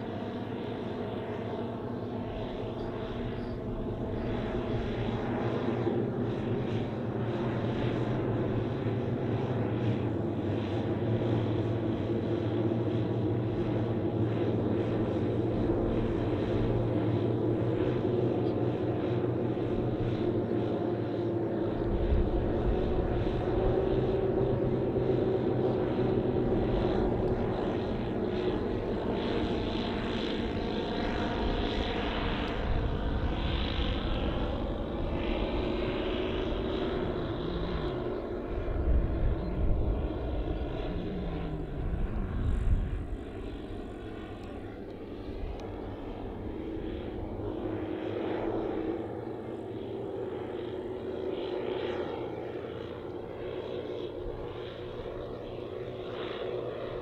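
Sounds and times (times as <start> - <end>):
model plane engines droning: 0.0 - 57.0.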